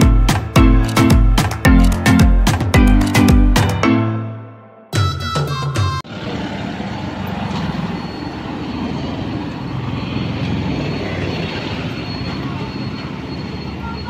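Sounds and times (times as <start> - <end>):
background music: 0.0 - 6.0
cars passing: 6.0 - 14.0
motorbikes passing: 6.0 - 14.0.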